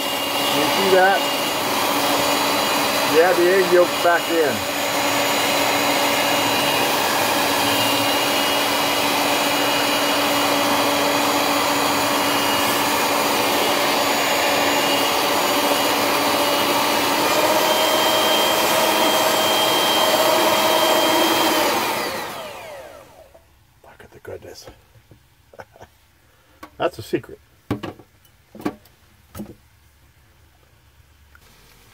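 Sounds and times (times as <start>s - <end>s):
stand mixer motor whine: 0.0s - 23.3s.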